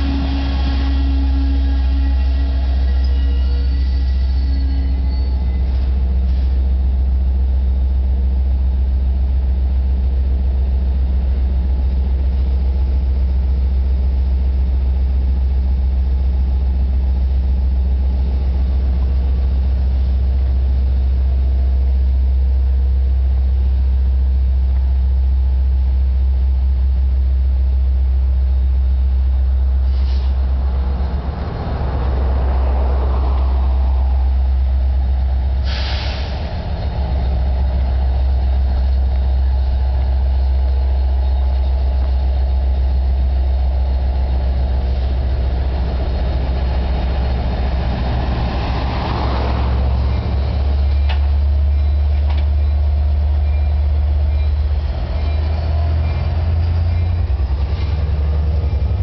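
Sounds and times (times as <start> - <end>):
rush of noise: 0.0 - 7.0, 28.9 - 52.7
diesel locomotive engine droning: 0.0 - 59.0.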